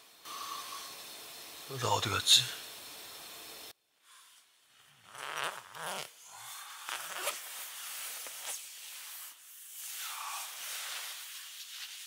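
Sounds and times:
sleeping bag nylon rustling: 0:06.9 - 0:12.0.

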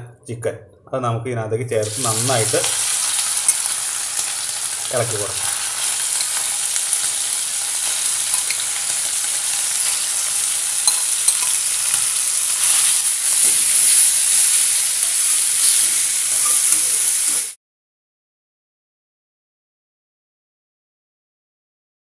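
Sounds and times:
chicken sizzling in oil: 0:01.8 - 0:17.6
metal spatula stirring in wok: 0:02.1 - 0:04.3, 0:05.5 - 0:17.4.

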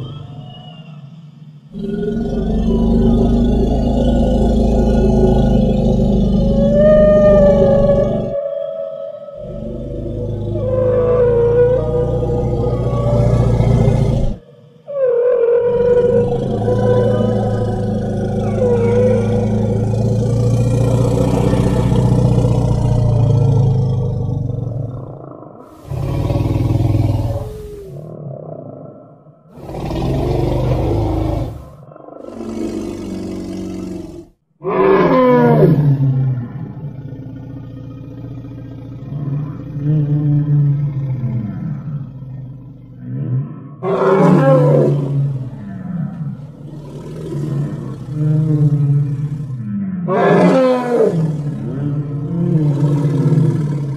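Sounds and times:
deep rumbling growl: 0:01.7 - 0:08.5, 0:09.4 - 0:15.0, 0:15.6 - 0:53.9
wavering higher cry: 0:04.9 - 0:24.0.

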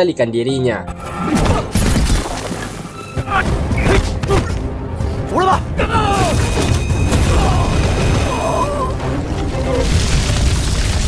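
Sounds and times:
background music: 0:00.0 - 0:11.0
debris crashing: 0:06.2 - 0:11.0.

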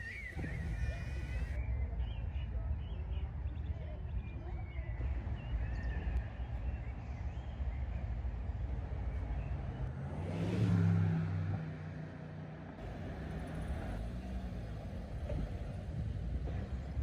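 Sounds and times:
low traffic rumble: 0:00.0 - 0:17.0
car passing by: 0:09.8 - 0:12.1.

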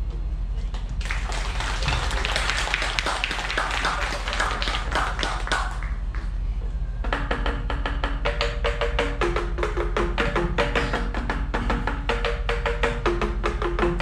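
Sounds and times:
audience clapping: 0:00.7 - 0:06.4
tuned bamboo tubes struck: 0:07.0 - 0:14.0.

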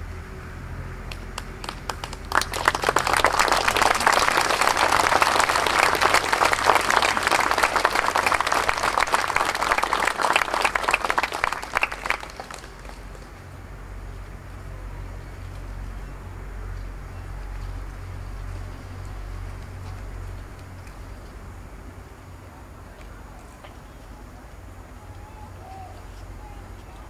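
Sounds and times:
crowd applauding: 0:01.1 - 0:13.3.

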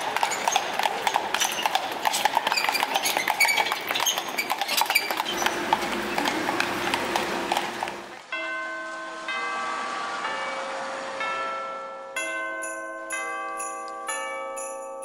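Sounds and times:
horse hooves clip-clopping: 0:00.0 - 0:08.2.

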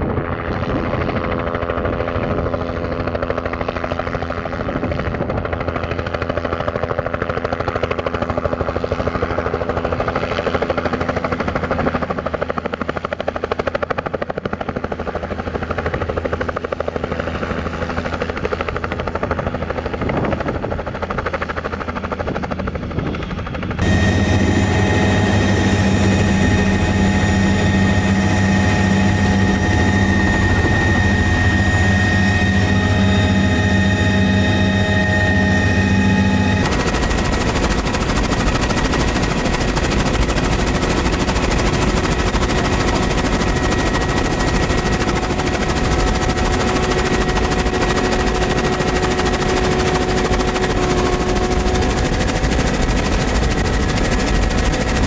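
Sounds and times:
helicopter rotor beating: 0:00.0 - 0:55.0
cabin low drone: 0:23.8 - 0:53.6
high turbine tone: 0:23.8 - 0:55.0.

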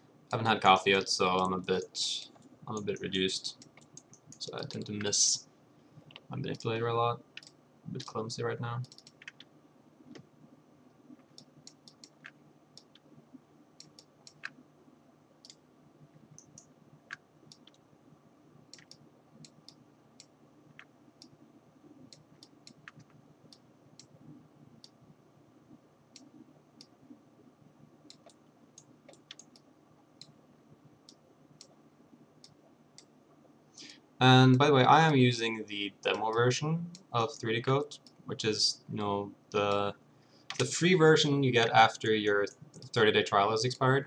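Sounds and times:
low steady hum: 0:00.0 - 0:44.0
mouse and keyboard clicking: 0:08.8 - 0:09.5, 0:11.2 - 0:13.1, 0:13.8 - 0:14.6, 0:18.7 - 0:20.9.

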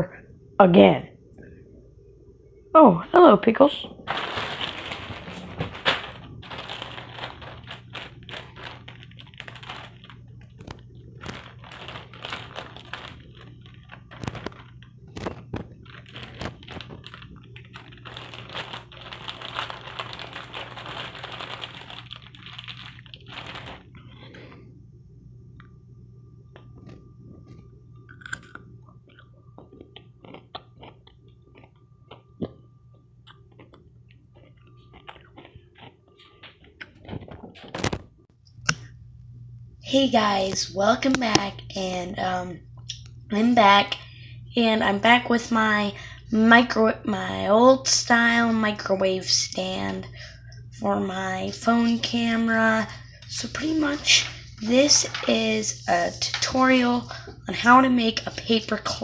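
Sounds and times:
plastic and foil crinkling: 0:03.9 - 0:24.6, 0:33.5 - 0:38.1, 0:51.1 - 0:59.0
faint clicks and rustles: 0:04.1 - 0:24.7.

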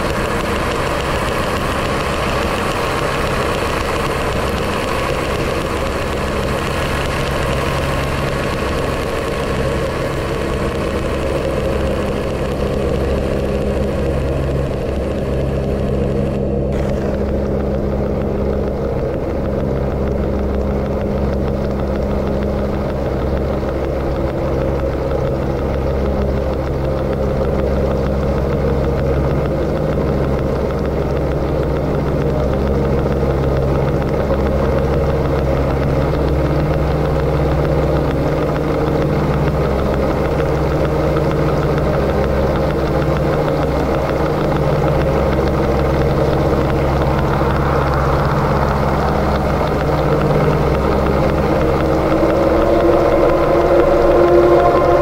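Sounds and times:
low drone of held tones: 0:00.0 - 0:55.0
high noise hiss: 0:45.8 - 0:55.0.

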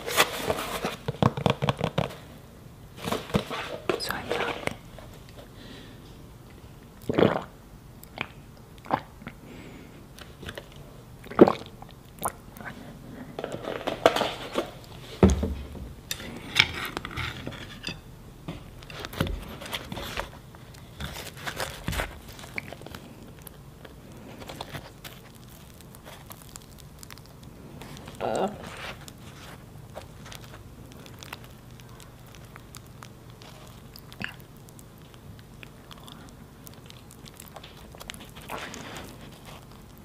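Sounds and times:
person chewing and swallowing: 0:06.5 - 0:09.4, 0:10.1 - 0:13.2, 0:18.5 - 0:40.0
mouth clicks: 0:33.9 - 0:34.9.

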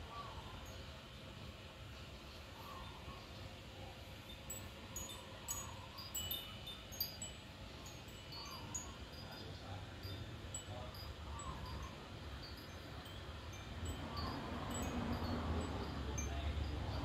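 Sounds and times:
wind chime tinkling: 0:04.2 - 0:17.0.

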